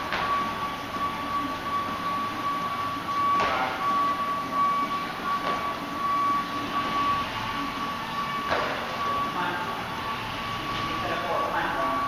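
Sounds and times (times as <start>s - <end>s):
high-pitched whine: 0.0s - 12.0s
body thumping onto gym floor: 8.5s - 9.0s.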